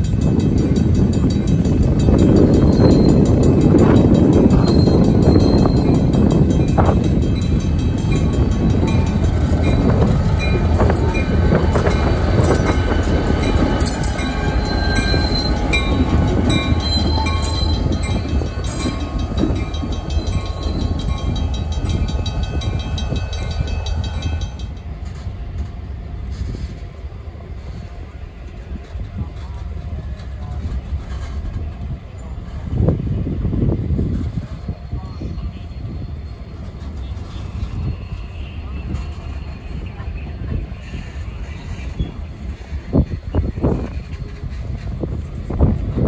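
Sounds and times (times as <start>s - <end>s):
diesel locomotive rumbling: 0.0s - 46.0s
high wheel squeals: 8.1s - 24.4s, 35.0s - 45.5s.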